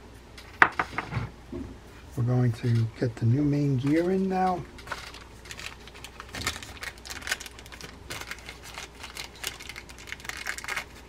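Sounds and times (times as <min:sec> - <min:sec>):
plastic bag crinkling: 0:03.8 - 0:11.0.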